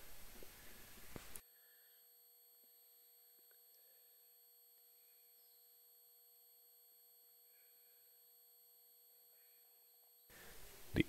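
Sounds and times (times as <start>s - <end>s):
faint hiss: 0.0s - 2.0s, 10.3s - 11.0s.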